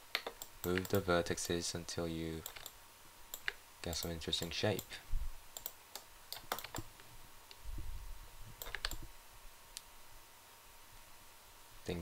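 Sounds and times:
mouse and keyboard clicks: 0:02.4 - 0:02.8, 0:05.6 - 0:06.9, 0:08.6 - 0:09.0.

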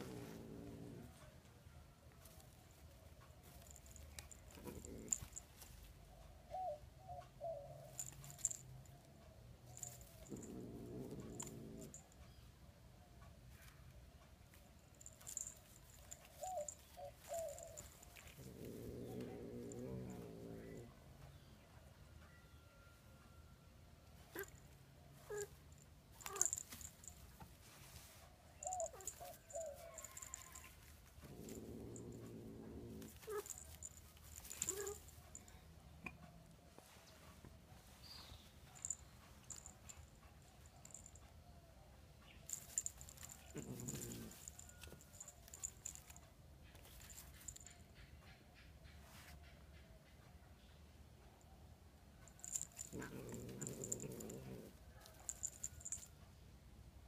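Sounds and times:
scratching on woven basket: 0:14.8 - 0:20.7, 0:25.2 - 0:35.5, 0:42.5 - 0:47.8, 0:52.3 - 0:56.1.

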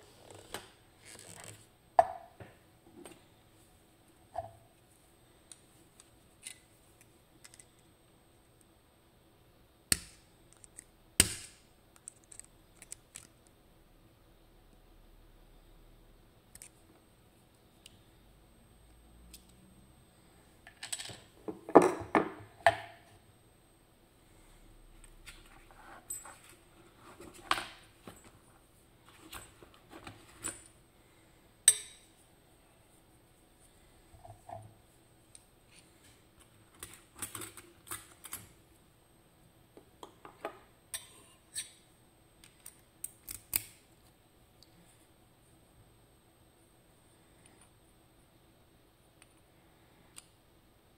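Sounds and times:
metallic clicks of lock parts: 0:42.4 - 0:43.8
pliers snapping: 0:43.0 - 0:43.8.

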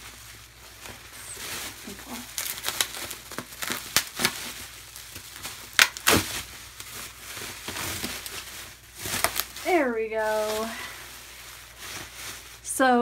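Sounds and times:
bubble wrap crinkling and snapping: 0:00.0 - 0:13.0.

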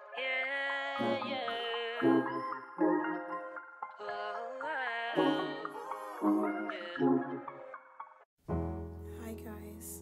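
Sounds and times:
gliding melodic notes: 0:00.8 - 0:04.6.

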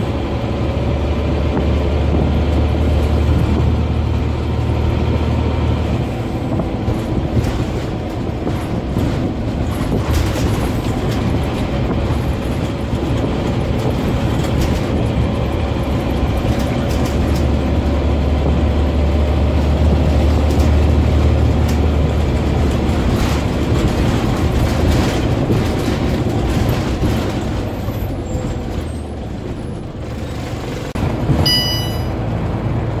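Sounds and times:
bus diesel engine rumbling: 0:00.0 - 0:33.0
brief high tone: 0:31.4 - 0:32.2.

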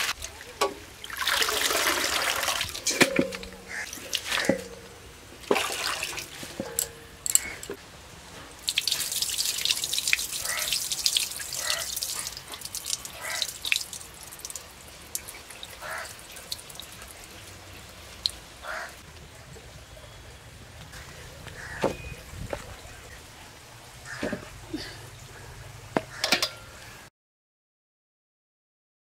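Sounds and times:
water splashing in steel bowl: 0:00.0 - 0:07.8, 0:08.5 - 0:18.9.

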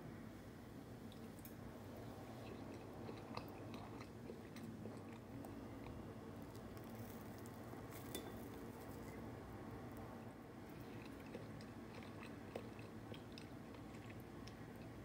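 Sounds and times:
moist clicks and squishes of eating: 0:01.1 - 0:09.3, 0:10.0 - 0:15.0
fork clinking on glass plate: 0:08.0 - 0:08.5.

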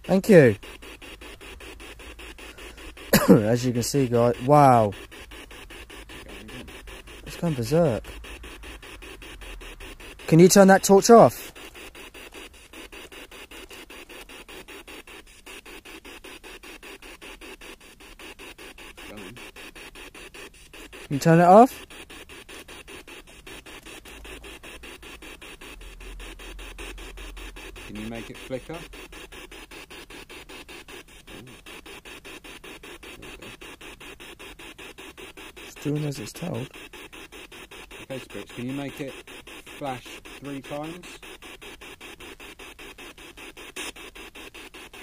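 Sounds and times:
pulsing radio static: 0:00.0 - 0:45.0.

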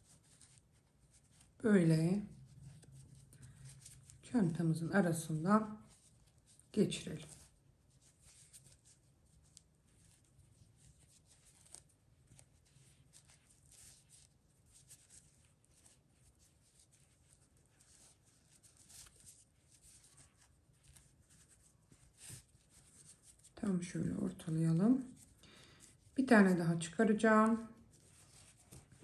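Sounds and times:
low steady hum: 0:00.0 - 0:29.0
yarn rustling: 0:00.0 - 0:29.0.

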